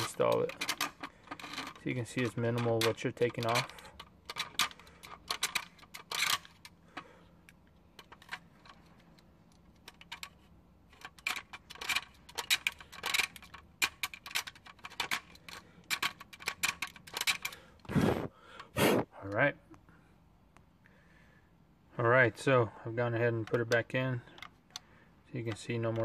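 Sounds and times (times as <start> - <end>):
plastic clicking and clattering: 0.0 - 17.9, 23.3 - 26.0.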